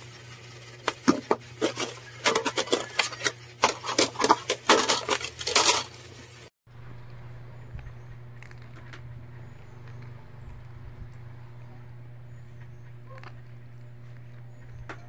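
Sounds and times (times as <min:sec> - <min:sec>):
plastic fan parts clicking and clattering: 0:00.8 - 0:06.0
low steady hum: 0:06.7 - 0:15.0.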